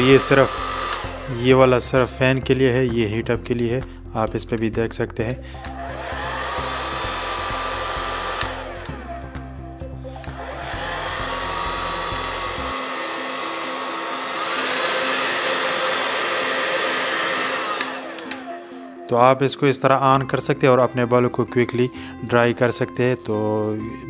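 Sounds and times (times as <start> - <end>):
hair dryer blowing: 0.0 - 2.2, 5.5 - 19.5.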